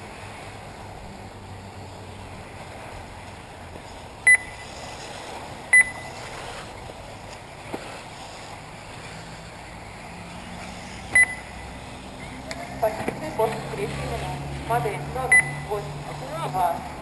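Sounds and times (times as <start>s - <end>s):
steady background hiss: 0.0s - 17.0s
short loud electronic beeps: 4.3s - 4.6s, 5.7s - 6.1s, 11.2s - 11.6s, 15.2s - 15.7s.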